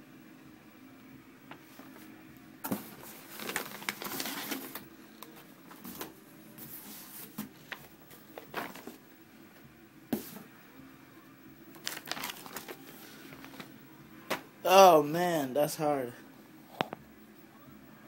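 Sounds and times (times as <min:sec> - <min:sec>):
plastic bag crinkling: 0:02.8 - 0:04.8, 0:07.7 - 0:09.0, 0:11.7 - 0:13.7.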